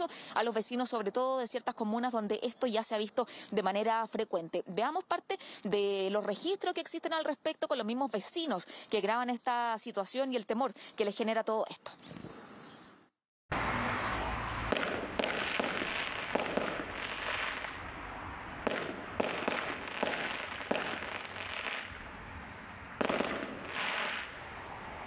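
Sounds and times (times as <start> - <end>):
fireworks bangs: 13.8 - 22.0, 23.0 - 24.6
fireworks crackle and rumble: 14.4 - 24.5.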